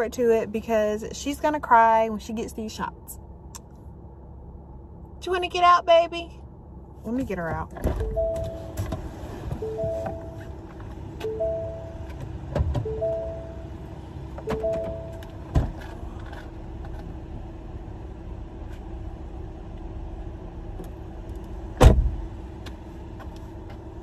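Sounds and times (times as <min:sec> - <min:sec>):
steady hum: 0:00.0 - 0:24.0
car door shutting: 0:07.8 - 0:13.5, 0:14.3 - 0:16.0, 0:21.8 - 0:22.2
car two-note warning chime: 0:08.0 - 0:08.8, 0:09.6 - 0:10.6, 0:11.2 - 0:12.2, 0:12.8 - 0:15.5.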